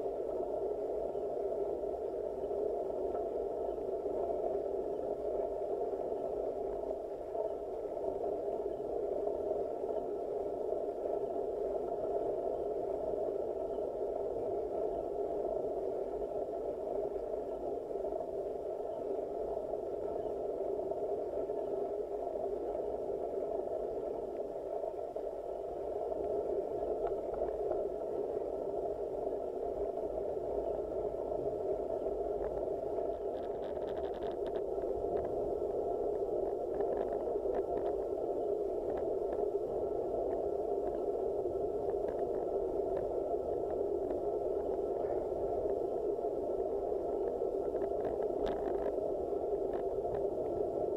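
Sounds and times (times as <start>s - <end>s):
faint steady whine: 0.0s - 50.9s
faint clicks: 26.1s - 27.9s, 32.4s - 35.4s, 36.4s - 38.1s, 38.8s - 39.6s, 41.8s - 45.8s, 47.2s - 50.6s
muffled camera noise: 29.8s - 46.0s, 47.2s - 50.9s.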